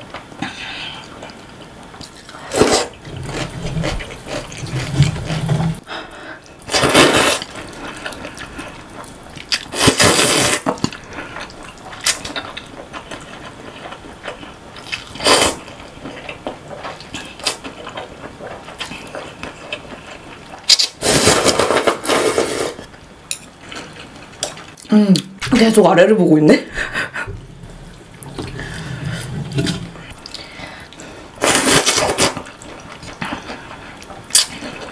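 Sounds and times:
slurping noodles: 2.4 - 5.8, 9.6 - 10.9, 21.0 - 22.9, 31.4 - 32.5.

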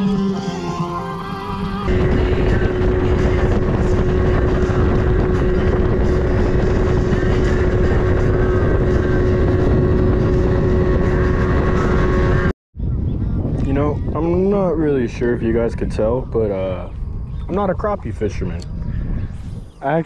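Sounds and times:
outboard motor whine: 0.0 - 12.9
wind: 0.0 - 20.0.

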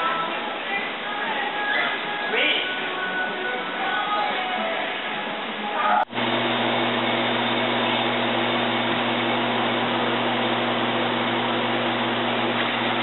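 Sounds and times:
industrial fan running: 6.1 - 13.0.

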